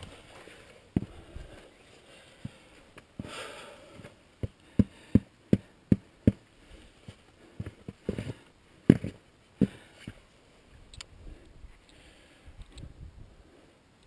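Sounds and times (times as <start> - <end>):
breathy rush: 0.0 - 5.8.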